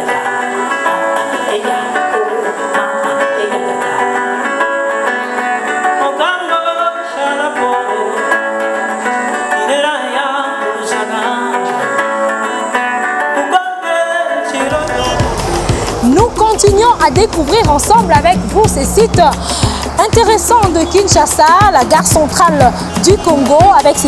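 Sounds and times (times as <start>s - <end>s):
people singing: 0.0s - 5.3s, 13.4s - 19.2s
acoustic guitar: 0.0s - 24.0s.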